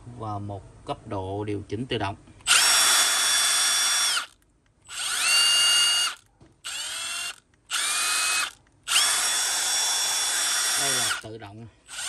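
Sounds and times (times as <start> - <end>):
impact driver motor whine: 2.5 - 4.3, 4.9 - 11.2.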